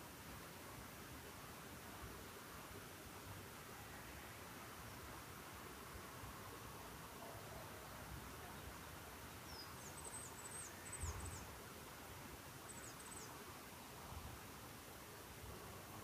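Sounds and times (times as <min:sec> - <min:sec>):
faint steady hiss: 0:00.0 - 0:16.0
songbird high chirps: 0:09.3 - 0:11.6, 0:12.6 - 0:13.4.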